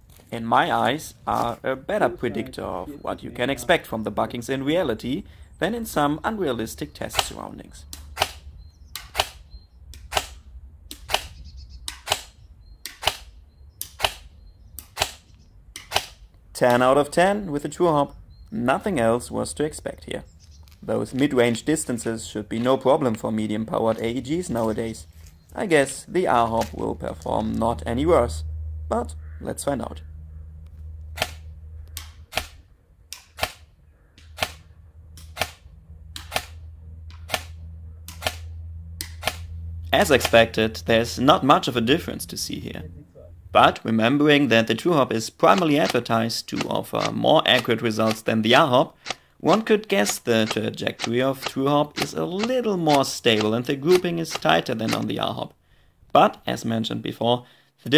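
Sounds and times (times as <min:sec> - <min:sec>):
low steady hum: 0:00.0 - 0:57.9
airsoft gun single shots: 0:08.0 - 0:08.4, 0:09.0 - 0:09.4, 0:10.0 - 0:11.3, 0:11.9 - 0:13.3, 0:13.9 - 0:16.2, 0:31.2 - 0:35.6, 0:37.2 - 0:39.5.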